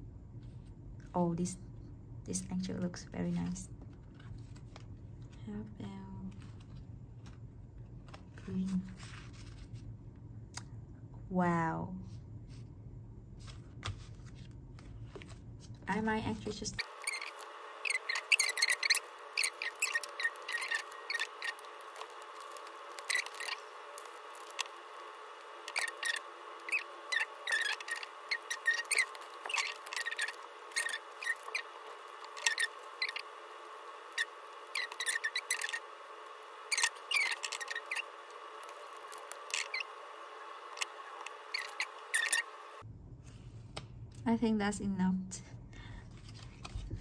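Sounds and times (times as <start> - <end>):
faint steady hum: 0.0 - 47.0
plastic sticker sheets crinkling: 13.8 - 42.4.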